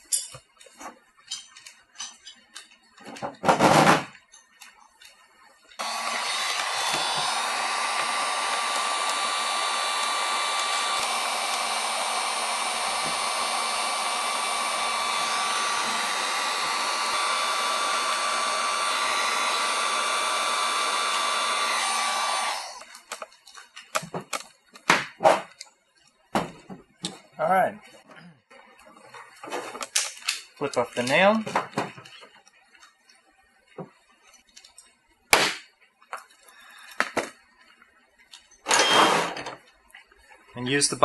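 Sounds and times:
heat gun fan humming: 5.8 - 23.2.

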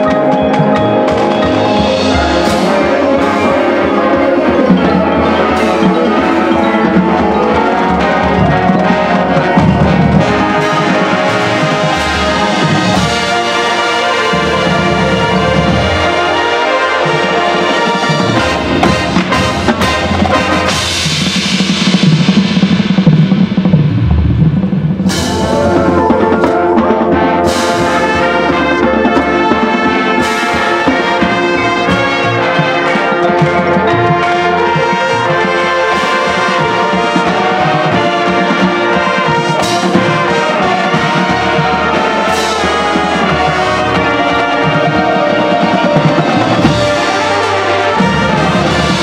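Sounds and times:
brass chords: 0.0 - 49.0
low drums: 0.0 - 49.0
marching band playing: 0.0 - 49.0.

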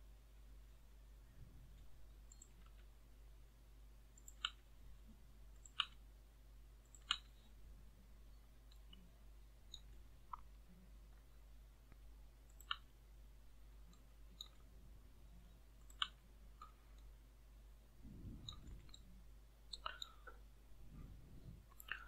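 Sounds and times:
faint low hum: 0.0 - 22.0
computer mouse clicking: 1.8 - 3.0, 4.1 - 4.7, 5.5 - 6.0, 6.8 - 7.5, 9.7 - 10.6, 11.9 - 13.0, 13.9 - 14.7, 15.8 - 17.1, 18.4 - 19.1, 19.7 - 20.4, 21.7 - 22.0.

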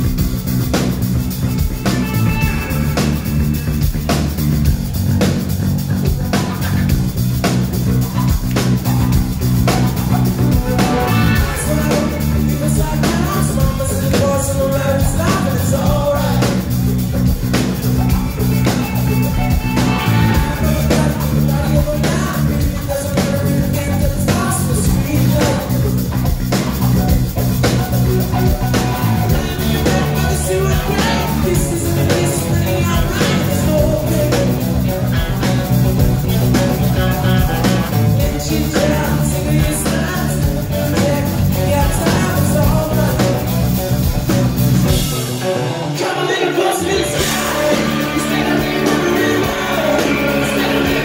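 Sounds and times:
live rock band playing: 0.0 - 51.0
man singing lead vocal: 10.3 - 26.4, 28.3 - 51.0.

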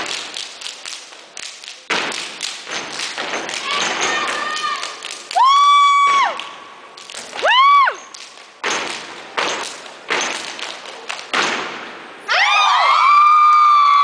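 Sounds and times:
stomps and claps: 0.0 - 11.9
whoops and cheering: 4.3 - 6.4, 7.4 - 8.0, 12.3 - 14.0.

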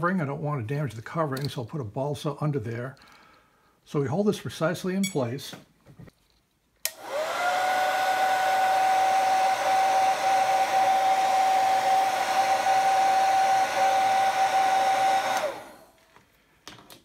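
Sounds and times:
heat gun whining: 6.8 - 16.0.

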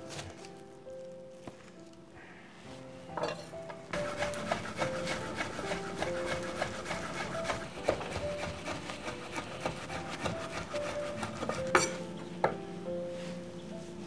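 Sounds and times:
gentle background music: 0.0 - 14.0
knife chopping on wooden board: 4.0 - 12.0.

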